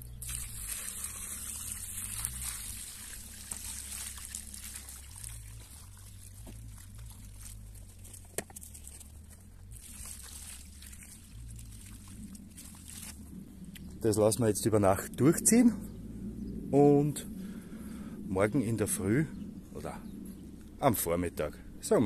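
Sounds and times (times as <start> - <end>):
liquid splashing and trickling: 0.0 - 13.6
steady low rumble: 0.0 - 22.0.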